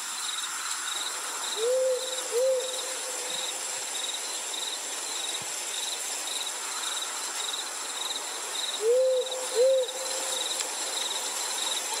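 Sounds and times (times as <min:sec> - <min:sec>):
crickets chirping: 0:00.0 - 0:12.0
owl hooting: 0:01.6 - 0:03.2, 0:08.8 - 0:10.0.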